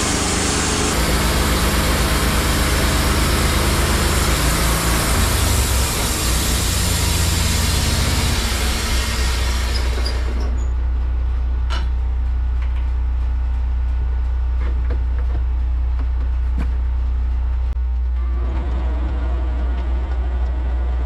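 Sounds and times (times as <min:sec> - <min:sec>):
sawmill engine idling: 0:00.0 - 0:15.9.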